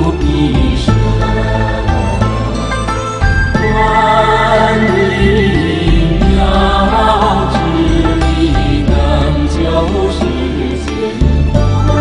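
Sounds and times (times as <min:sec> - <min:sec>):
sustained held accompaniment: 0:00.0 - 0:12.0.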